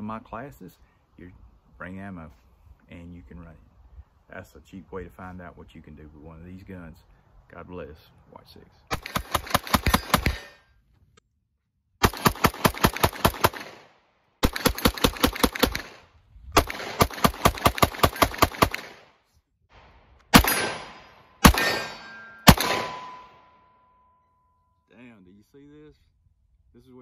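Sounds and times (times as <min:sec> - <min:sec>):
rapid pistol shots: 0:08.9 - 0:10.6, 0:12.0 - 0:19.2, 0:19.8 - 0:23.4
single loud gunshot bangs: 0:20.3 - 0:23.4.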